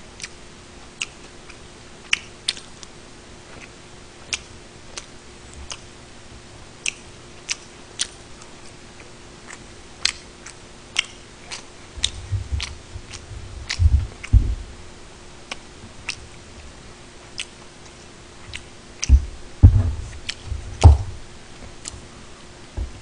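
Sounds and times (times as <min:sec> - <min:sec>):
chewing food: 0:00.2 - 0:00.4, 0:01.0 - 0:06.0, 0:06.8 - 0:14.6, 0:15.4 - 0:19.4, 0:20.0 - 0:20.8
sharp mouth clicks: 0:00.2 - 0:00.4, 0:01.0 - 0:05.9, 0:06.8 - 0:14.4, 0:15.5 - 0:16.4, 0:17.3 - 0:19.3
low thuds: 0:12.0 - 0:15.0, 0:18.5 - 0:21.4, 0:22.8 - 0:23.0.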